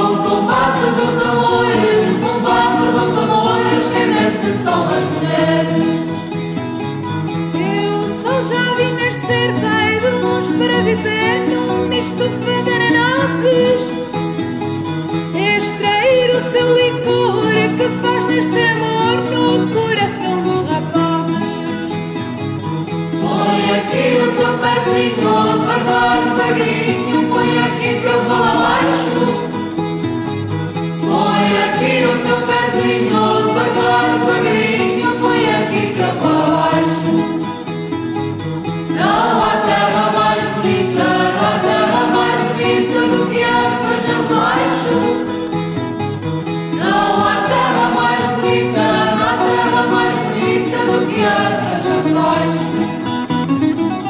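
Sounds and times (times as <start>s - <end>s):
voices singing together: 0.0s - 6.3s, 23.0s - 29.8s, 30.9s - 37.4s, 38.8s - 45.5s, 46.7s - 53.2s
guitar accompaniment: 0.0s - 54.0s.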